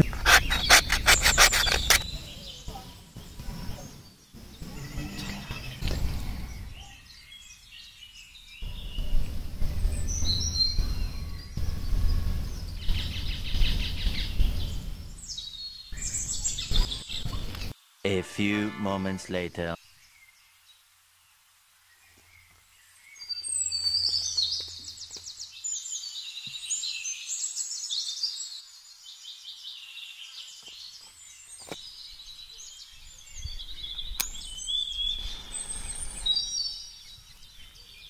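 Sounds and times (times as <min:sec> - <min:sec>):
birds chirping and singing: 0:00.0 - 0:20.8, 0:21.9 - 0:38.0
low rumble: 0:08.6 - 0:15.2.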